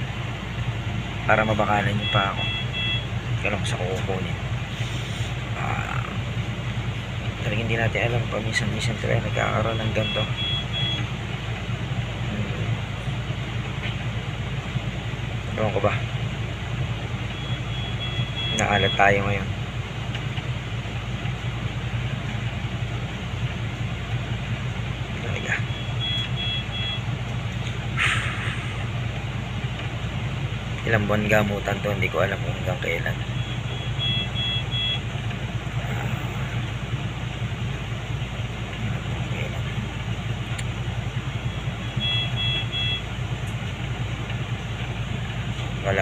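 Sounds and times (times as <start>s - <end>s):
low mechanical hum: 0.0s - 46.0s
high electronic beeps: 2.0s - 3.1s, 9.3s - 11.1s, 17.4s - 19.2s, 25.3s - 27.1s, 33.2s - 35.1s, 41.4s - 43.1s.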